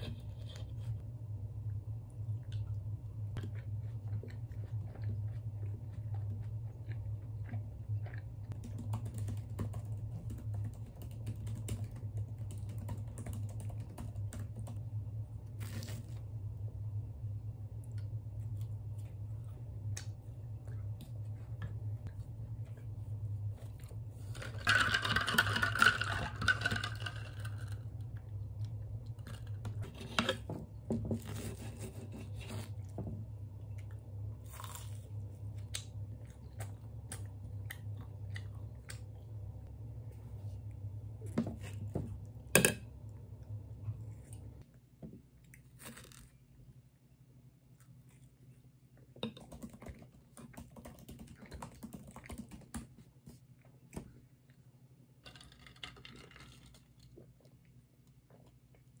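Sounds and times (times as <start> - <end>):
low steady hum: 0.0 - 59.0
chewing: 3.4 - 8.6.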